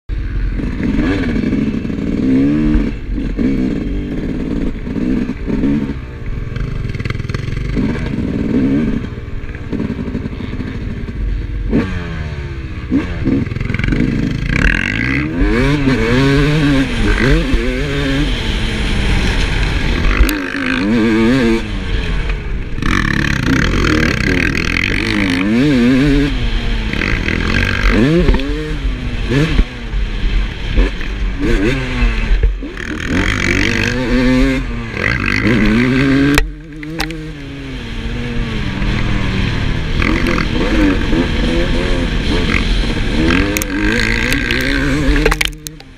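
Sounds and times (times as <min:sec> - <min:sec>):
two-stroke motorcycle engine revving: 0:00.1 - 0:45.9
rushing noise with clatter: 0:12.9 - 0:45.9.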